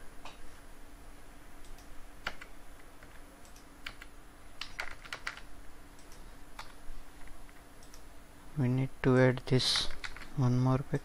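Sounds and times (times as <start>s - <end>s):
faint steady hum: 0.0s - 11.0s
keyboard keys clicking: 1.7s - 5.4s.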